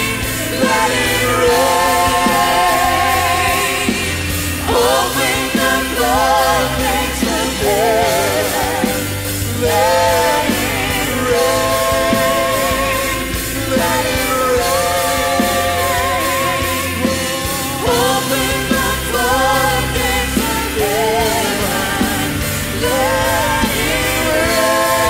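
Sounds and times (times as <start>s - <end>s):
rock worship band playing: 0.0s - 25.0s.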